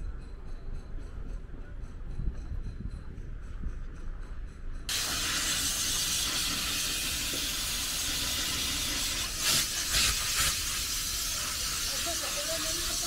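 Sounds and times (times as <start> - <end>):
steam cleaner hissing: 4.9 - 13.0.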